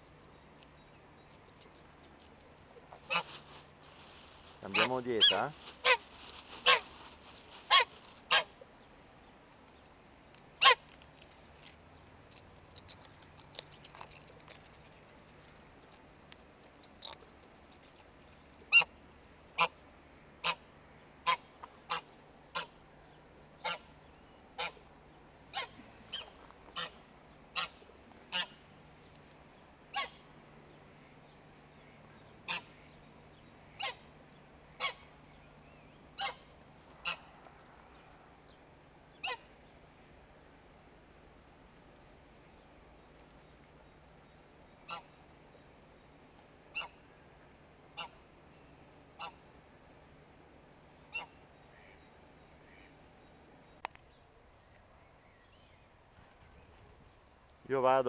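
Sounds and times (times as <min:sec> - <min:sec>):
goose honking: 0:03.0 - 0:03.3, 0:04.7 - 0:06.9, 0:07.7 - 0:08.5, 0:25.5 - 0:28.6, 0:29.9 - 0:30.2, 0:32.5 - 0:32.8, 0:36.2 - 0:37.3.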